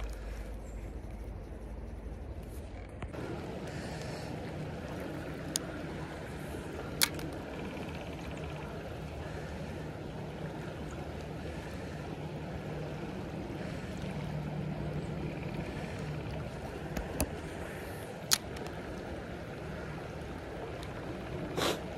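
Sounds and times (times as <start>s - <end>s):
creek water flowing: 3.1s - 21.9s
sharp clicks: 6.9s - 7.7s.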